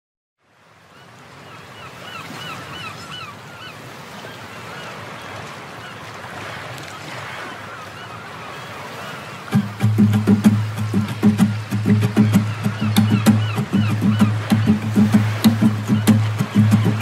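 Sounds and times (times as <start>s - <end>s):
surf washing: 0.5s - 17.0s
bird calling short cries: 11.8s - 17.0s.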